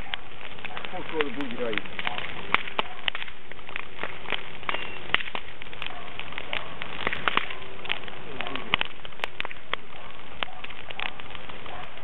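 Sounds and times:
bonfire hissing: 0:00.0 - 0:12.0
burning wood crackling and popping: 0:00.0 - 0:12.0.

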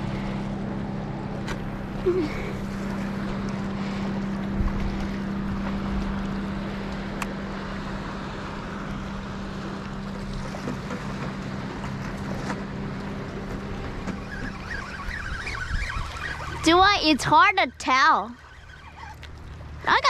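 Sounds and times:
boat engine running: 0:00.0 - 0:20.0
wind noise on microphone: 0:14.0 - 0:17.0.

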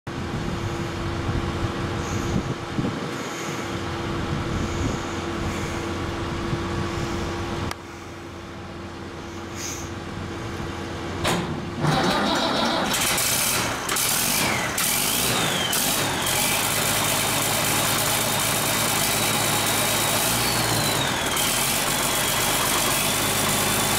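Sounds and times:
tractor diesel engine running open: 0:00.1 - 0:23.9
turbo whine: 0:11.8 - 0:23.9.

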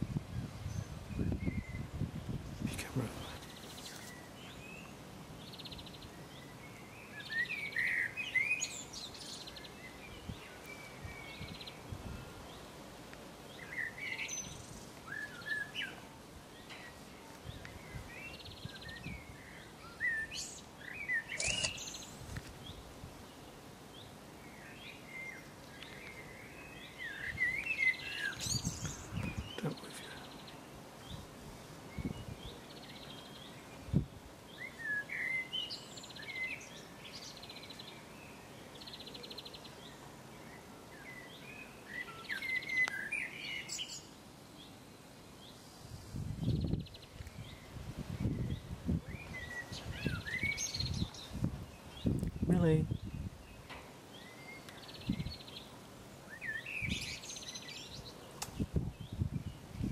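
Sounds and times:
birds chirping and singing: 0:13.5 - 0:31.3, 0:31.9 - 0:44.8, 0:45.4 - 0:59.9.

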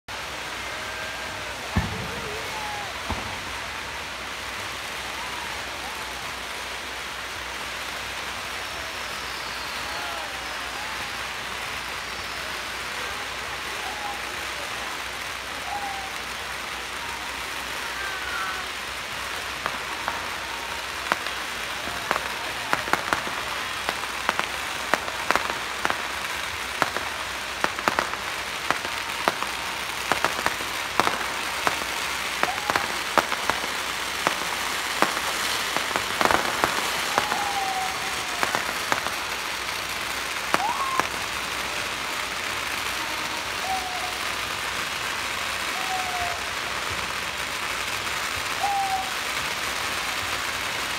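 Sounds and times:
firecrackers crackling: 0:00.1 - 0:50.9
loud firecracker bangs: 0:00.9 - 0:04.0, 0:19.4 - 0:44.2.

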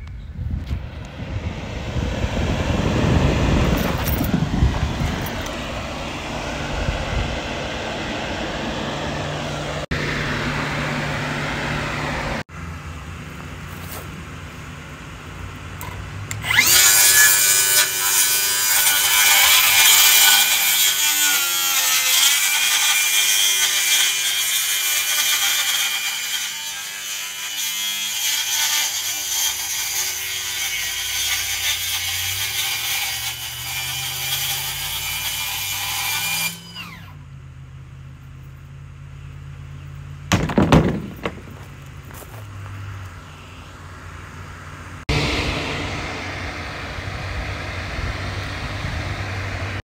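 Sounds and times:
steady low hum: 0:00.0 - 0:16.4, 0:37.1 - 0:49.8
power saw cutting board: 0:00.9 - 0:12.5, 0:15.8 - 0:37.2, 0:45.0 - 0:49.8.

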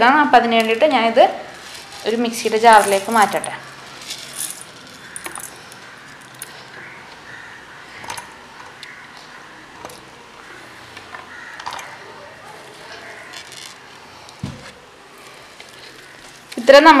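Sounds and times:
spices clinking into metal jar: 0:01.6 - 0:06.5.

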